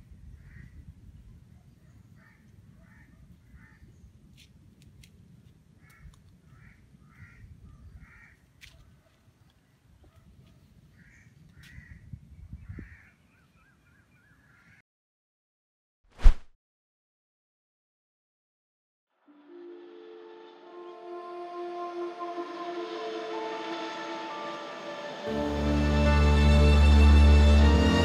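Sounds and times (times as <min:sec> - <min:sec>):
crows cawing: 0:02.2 - 0:03.8, 0:05.8 - 0:08.5, 0:11.0 - 0:12.0, 0:12.7 - 0:13.2.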